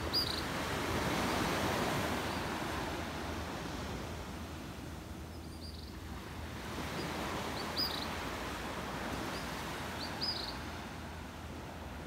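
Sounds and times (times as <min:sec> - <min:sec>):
surf on sandy beach: 0:00.0 - 0:12.0
small bird chirping: 0:00.1 - 0:00.4, 0:09.4 - 0:10.6.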